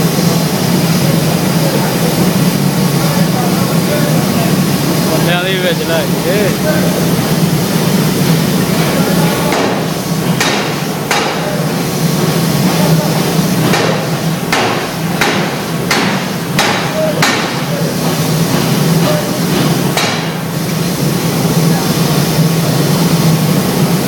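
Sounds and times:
steady low hum: 0.0 - 24.0
forging hammer blows on steel: 8.8 - 11.8, 12.6 - 20.4.

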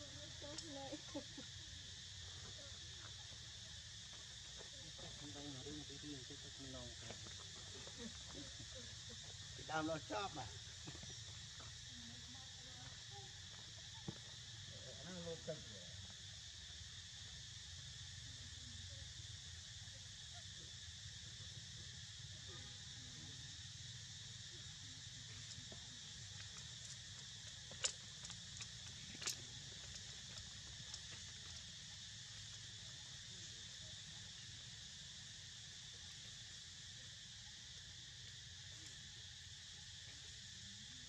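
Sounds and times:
crickets trilling: 0.0 - 41.0.

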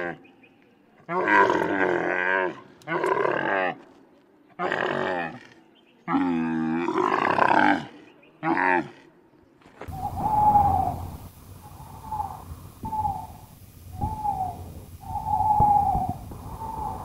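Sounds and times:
light hiss: 9.9 - 17.0
owl hooting: 9.9 - 17.0.

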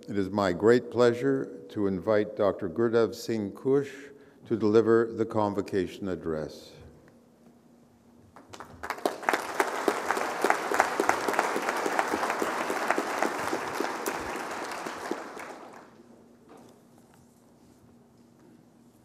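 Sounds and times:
audience applauding: 8.4 - 16.0.

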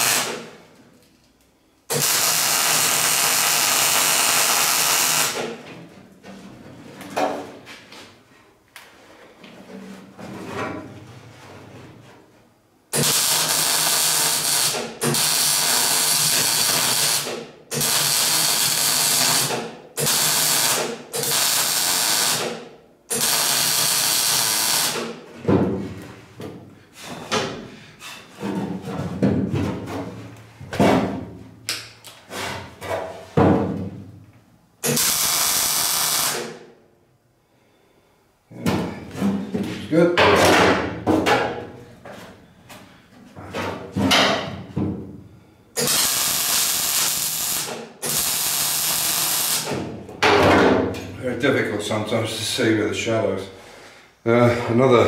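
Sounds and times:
welder arc crackling: 0.0 - 0.3, 1.9 - 5.4, 13.0 - 14.8, 15.4 - 22.4, 34.9 - 36.5, 45.8 - 49.7.

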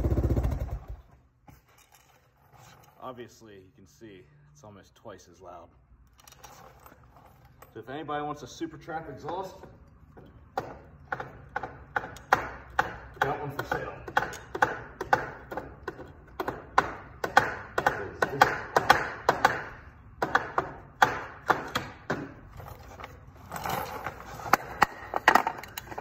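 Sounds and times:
metallic clicks and scraping: 6.0 - 7.8, 22.5 - 26.0.

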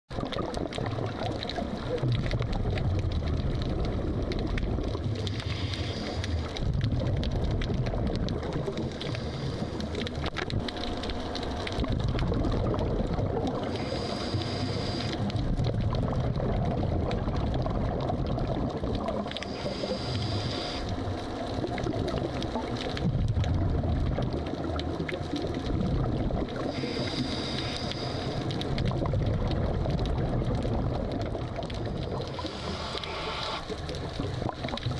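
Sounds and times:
exhaled bubbles gurgling: 0.1 - 34.9
regulator hissing inhale: 5.3 - 6.6, 8.9 - 10.0, 13.7 - 15.3, 19.4 - 21.0, 26.7 - 28.6, 32.3 - 33.7.

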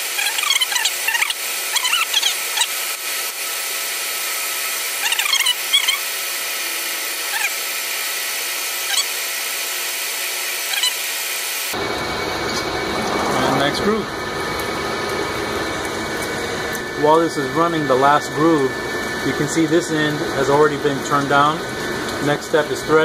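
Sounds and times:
cutting tool squealing chirps: 0.0 - 3.4, 4.4 - 9.4, 10.6 - 11.3, 16.7 - 21.3
lathe machine whine and hiss: 0.0 - 23.0
low machine hum: 11.7 - 23.0.

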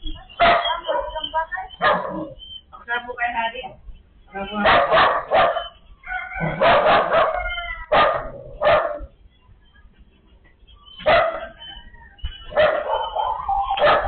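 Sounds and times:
dog barking: 0.4 - 2.4, 4.5 - 9.1, 11.0 - 11.8, 12.4 - 14.0.

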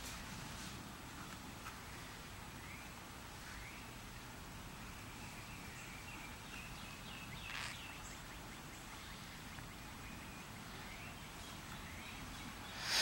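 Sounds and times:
faint birds chirping: 1.1 - 13.0
sharp bird call: 12.7 - 13.0.

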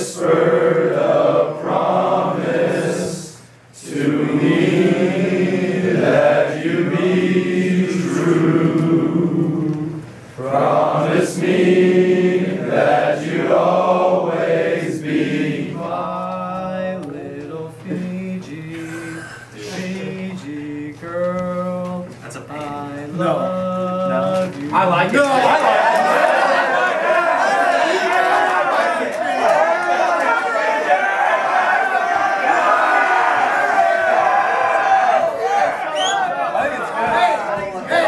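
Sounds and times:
male choir singing: 0.0 - 21.8.

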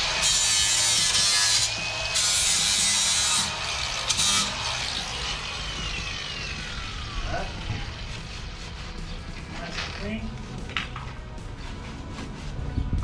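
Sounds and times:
angle grinder grinding metal: 0.0 - 10.0.

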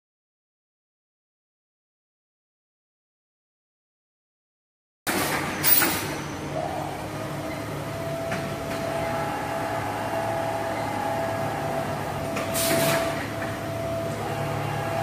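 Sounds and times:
loud hiss: 12.5 - 13.2.

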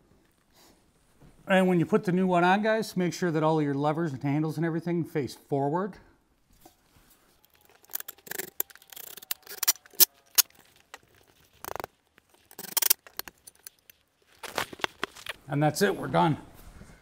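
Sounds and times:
metal scrape: 7.0 - 13.9.

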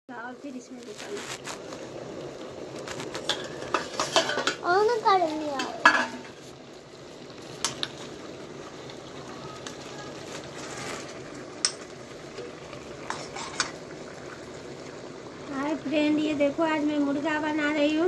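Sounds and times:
chicken sizzling in a wok: 0.1 - 18.0
metal spoon clinking on pan: 11.6 - 11.9.

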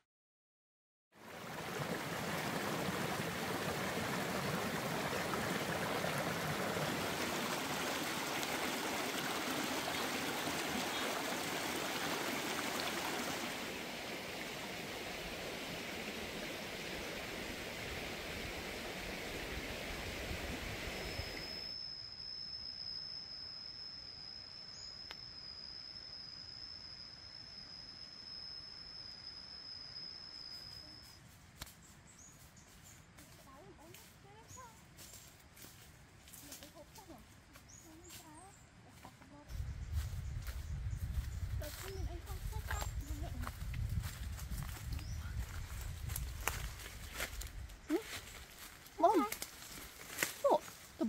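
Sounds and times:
stream rushing: 1.2 - 21.5
high-pitched insect call: 4.2 - 39.0, 39.6 - 51.0.

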